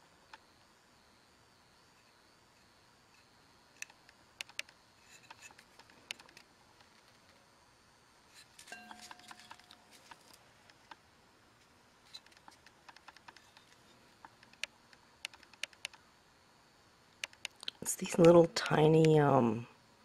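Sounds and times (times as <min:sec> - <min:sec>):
woodburning pen ticks and scratches: 0:03.7 - 0:07.3, 0:12.1 - 0:16.0, 0:17.2 - 0:19.2.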